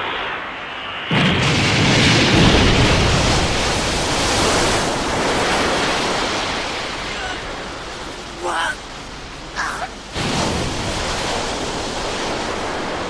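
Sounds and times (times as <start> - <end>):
rumbling explosion blast: 1.0 - 7.8.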